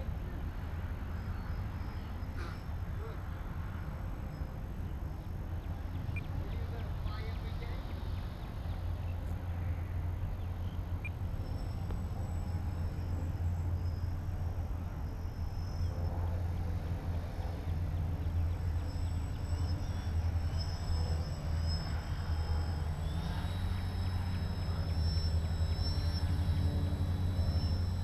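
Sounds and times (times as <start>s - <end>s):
model airplane motor drone: 0.0s - 28.0s
steady low rumble: 0.0s - 28.0s.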